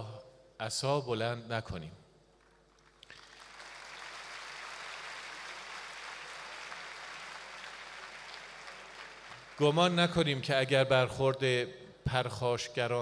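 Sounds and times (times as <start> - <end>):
large audience applauding: 2.4 - 10.0.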